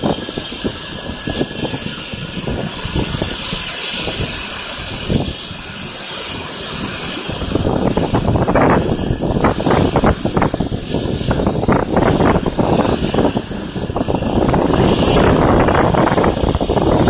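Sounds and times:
helicopter rotor turning: 0:00.0 - 0:17.0
wind buffeting microphone: 0:00.0 - 0:17.0.

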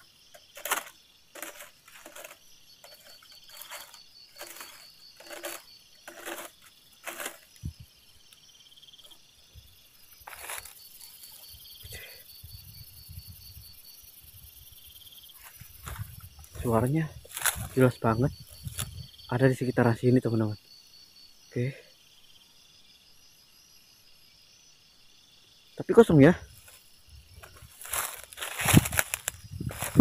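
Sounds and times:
rustles in dry grass: 0:00.0 - 0:07.9, 0:10.1 - 0:11.6, 0:15.4 - 0:19.1, 0:26.5 - 0:30.0
night insects chirring: 0:00.0 - 0:30.0.

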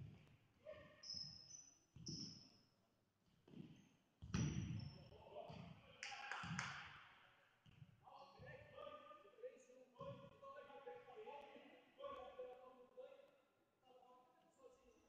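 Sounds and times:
ball kicks echoing in hall: 0:00.0 - 0:02.5, 0:03.2 - 0:08.8
shoes squeaking on floor: 0:00.8 - 0:02.6.

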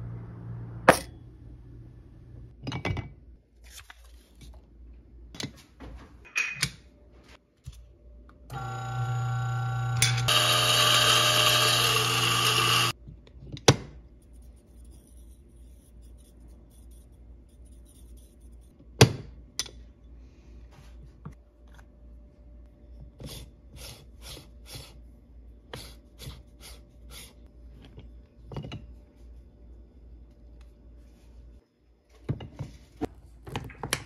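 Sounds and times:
coffee grinder motor whine: 0:08.5 - 0:13.0.

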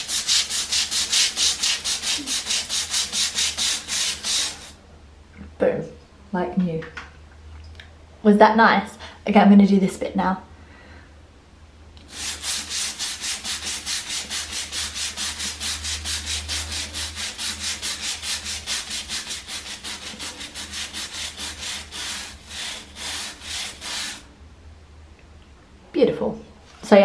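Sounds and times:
brush scrubbing tile grout: 0:00.0 - 0:04.8, 0:12.1 - 0:24.3.

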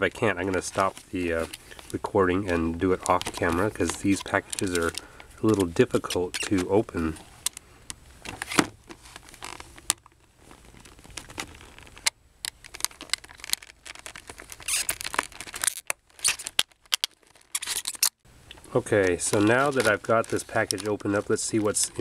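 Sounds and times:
plastic crackles: 0:00.0 - 0:22.0
knife cutting plastic packaging: 0:12.7 - 0:18.1.

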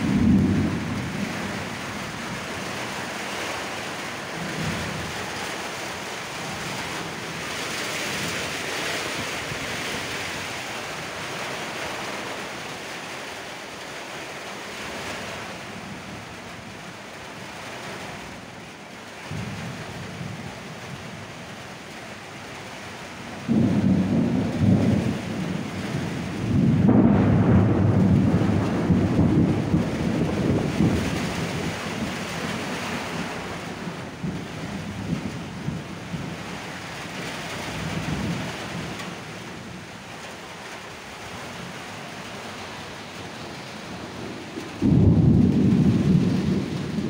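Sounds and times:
thunder rumbling: 0:00.0 - 0:11.8, 0:23.4 - 0:40.1, 0:40.9 - 0:47.0
rain on concrete roof: 0:00.0 - 0:47.0.

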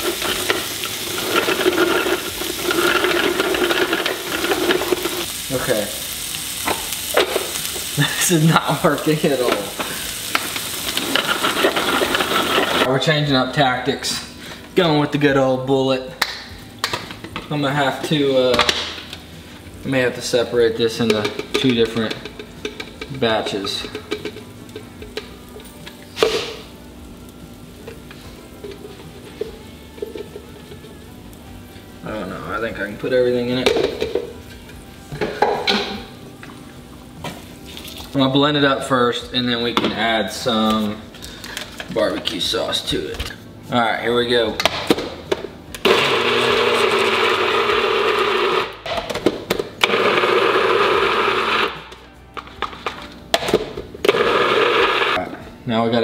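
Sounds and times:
blender running: 0:11.3 - 0:12.9, 0:45.8 - 0:48.8, 0:49.8 - 0:51.9, 0:54.1 - 0:55.2.

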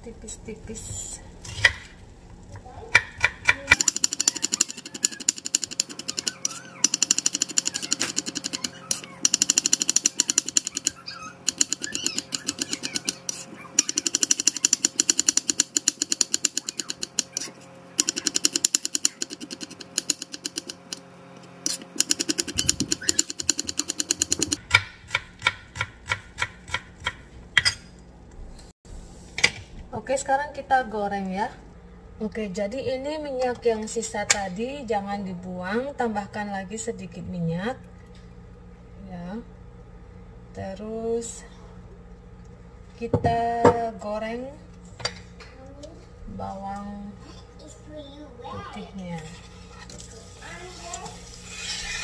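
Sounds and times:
knife chopping on plastic board: 0:22.1 - 0:27.7.

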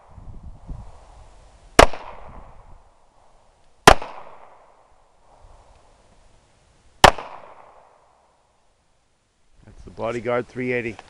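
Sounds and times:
pistol shots with echo: 0:01.8 - 0:02.4, 0:03.8 - 0:04.8, 0:07.0 - 0:07.9.

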